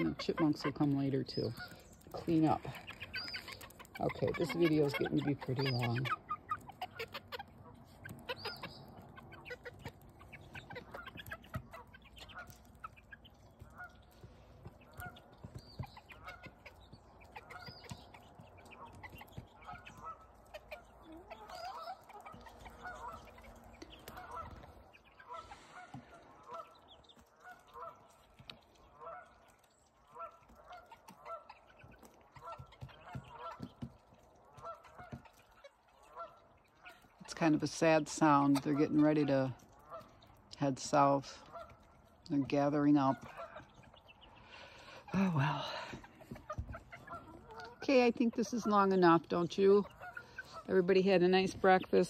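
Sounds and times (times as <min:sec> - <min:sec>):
geese honking: 0:00.0 - 0:52.0.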